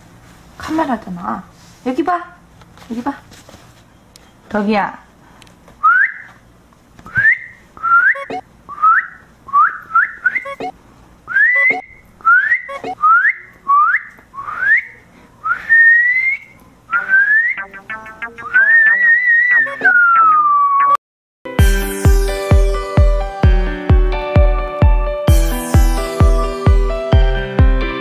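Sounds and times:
person whistling rising notes: 5.8s - 6.3s, 7.1s - 10.6s, 11.3s - 21.0s.

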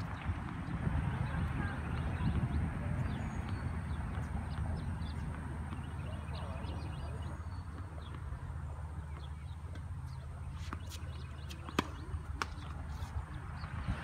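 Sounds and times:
tennis ball bouncing on court: 1.9s - 8.4s, 9.0s - 13.8s
tennis ball struck by rackets: 10.6s - 13.1s.

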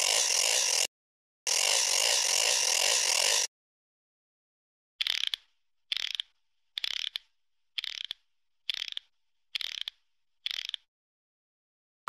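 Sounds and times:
socket ratchet clicking: 5.0s - 10.9s.

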